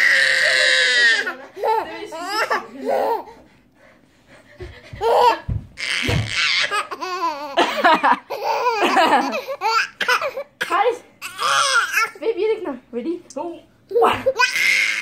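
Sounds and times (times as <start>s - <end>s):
baby laughing: 4.9s - 10.5s, 14.0s - 15.0s.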